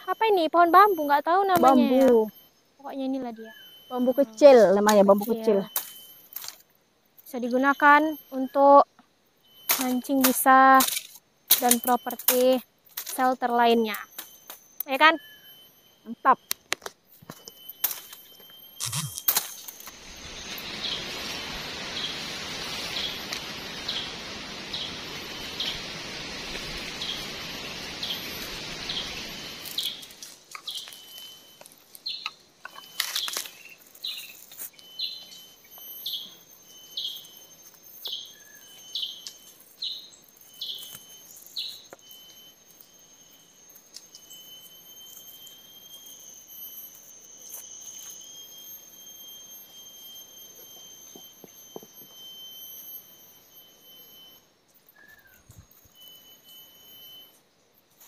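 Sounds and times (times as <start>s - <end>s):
thin high whine: 0.0s - 58.0s
bird chirping: 0.9s - 6.2s, 17.4s - 46.5s, 54.7s - 57.1s
steady rushing noise: 20.0s - 30.2s.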